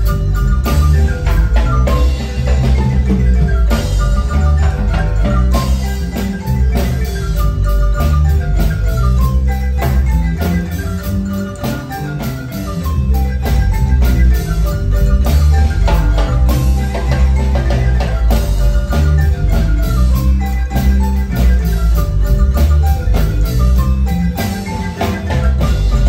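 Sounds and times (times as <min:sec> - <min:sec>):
marimba band playing dance music: 0:00.0 - 0:26.0
strong bass line: 0:00.0 - 0:26.0.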